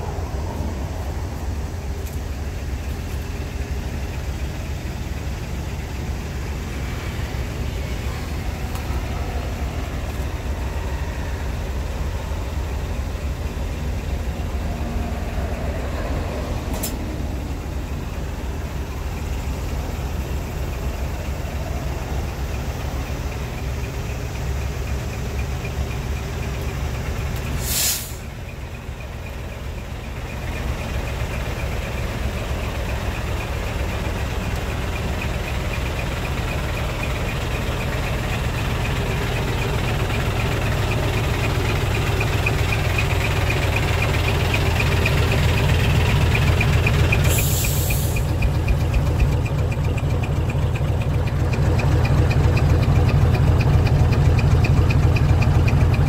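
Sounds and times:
truck diesel engine idling: 0:00.0 - 0:56.0
air brake hiss: 0:27.5 - 0:28.3, 0:47.2 - 0:48.3.

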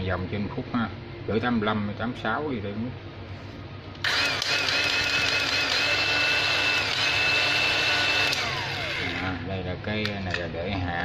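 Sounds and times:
circular saw motor whining: 0:04.0 - 0:09.6.

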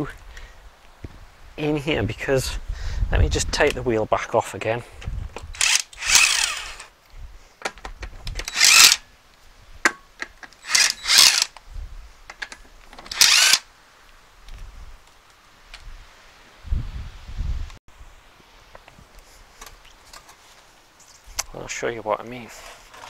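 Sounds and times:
impact wrench bursts: 0:05.6 - 0:06.9, 0:08.4 - 0:09.0, 0:10.6 - 0:11.5, 0:13.1 - 0:13.6.

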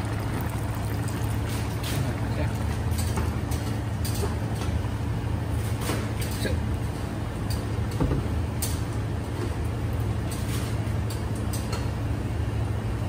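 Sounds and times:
curry simmering: 0:00.0 - 0:03.0
cooktop hum: 0:00.0 - 0:13.0.

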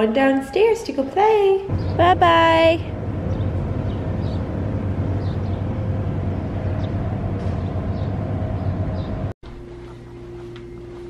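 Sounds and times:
steady low rumble: 0:01.7 - 0:09.4.

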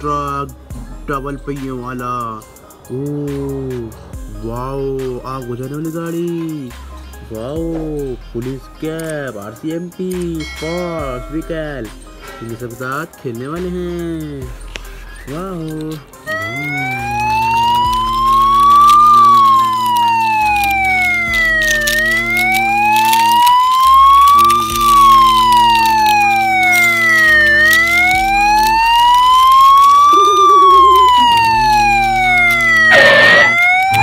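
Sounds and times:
steady low drone: 0:14.2 - 0:34.0
police siren wailing: 0:15.2 - 0:34.0.

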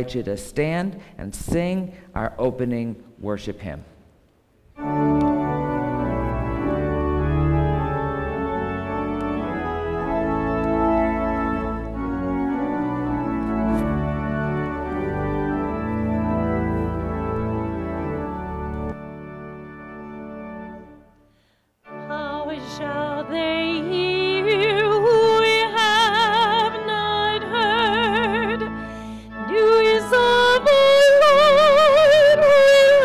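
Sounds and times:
church organ chords: 0:04.7 - 0:33.0.

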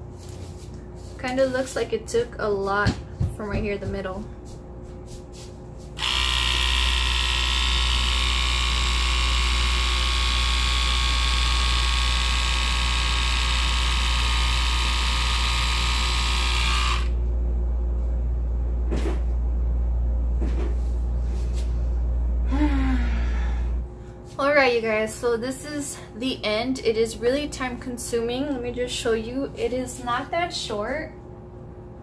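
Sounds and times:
small electric trimmer motor: 0:06.0 - 0:17.2.

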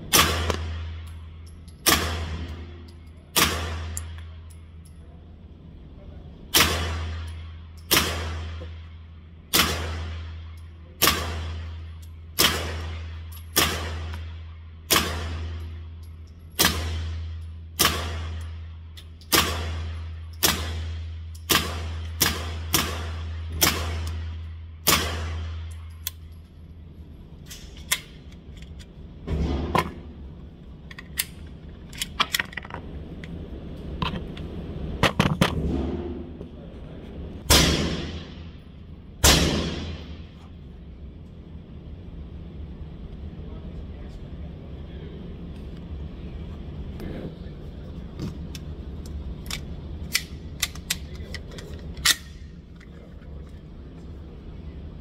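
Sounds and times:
low hum: 0:00.0 - 0:55.0
suppressed pistol shots: 0:00.1 - 0:01.1, 0:01.8 - 0:02.7, 0:03.3 - 0:04.2, 0:06.5 - 0:08.7, 0:09.5 - 0:11.8, 0:12.4 - 0:15.7, 0:16.6 - 0:18.6, 0:19.2 - 0:25.8, 0:37.5 - 0:38.4, 0:39.2 - 0:40.2.

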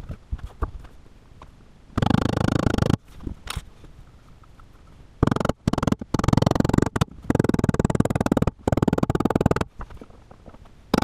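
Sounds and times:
hand tool scraping plywood: 0:05.2 - 0:11.0.

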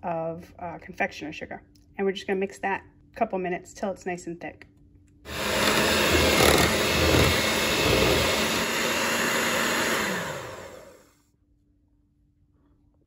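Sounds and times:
electric hand mixer whirring: 0:05.3 - 0:11.1.

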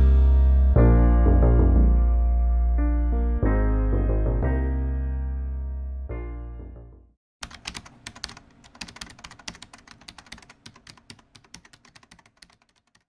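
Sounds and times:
computer keyboard typing: 0:07.4 - 0:13.0.

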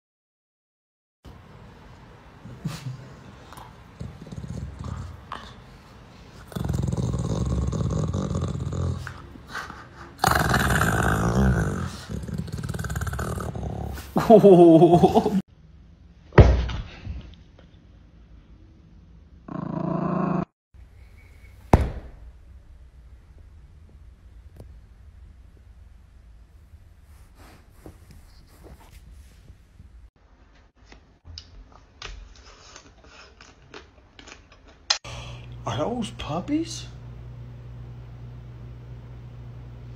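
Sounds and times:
dog groaning: 0:03.5 - 0:05.7, 0:06.4 - 0:14.2, 0:19.5 - 0:20.5
dog grumbling and snorting: 0:03.5 - 0:05.7, 0:06.4 - 0:09.4, 0:10.2 - 0:14.3, 0:19.5 - 0:20.5
thump: 0:21.7 - 0:22.3.

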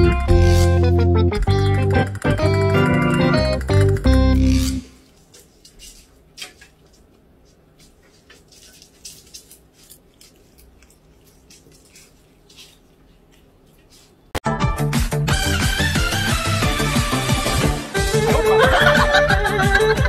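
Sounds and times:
faint room noise: 0:04.9 - 0:14.4
cat chewing a leaf: 0:08.0 - 0:14.2
loud music: 0:14.4 - 0:20.0.

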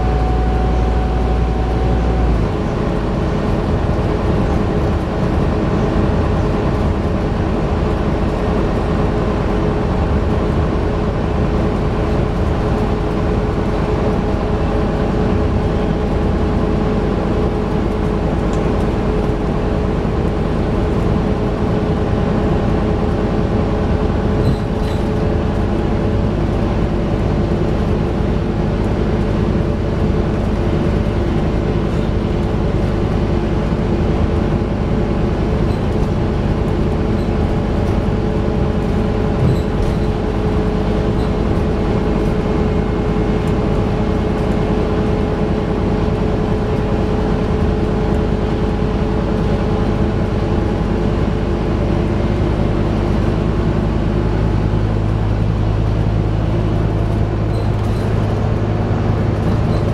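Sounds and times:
bus engine running: 0:00.0 - 0:59.9
road noise: 0:00.0 - 0:59.9.

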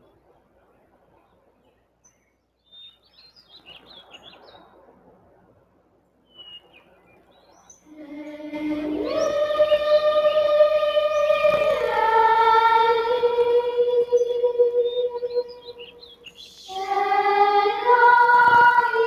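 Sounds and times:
birds chirping: 0:06.3 - 0:19.0
music with long held notes: 0:07.9 - 0:15.8, 0:16.7 - 0:19.0.

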